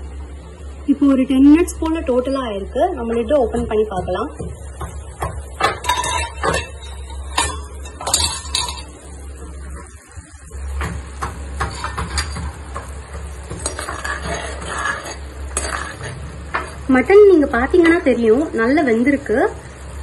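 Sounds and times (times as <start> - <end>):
metal spoon clinking on pan: 5.6 - 9.0, 11.6 - 16.8
spoon stirring and scraping: 5.6 - 9.0, 11.2 - 16.9.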